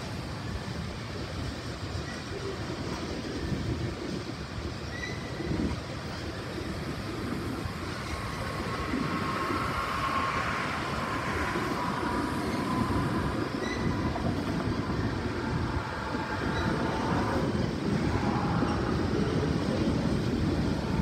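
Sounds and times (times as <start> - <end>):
freight train rumbling past: 0.0 - 21.0
wheels clattering on rails: 0.0 - 21.0
faint wheel squeal: 4.8 - 6.6, 7.4 - 21.0.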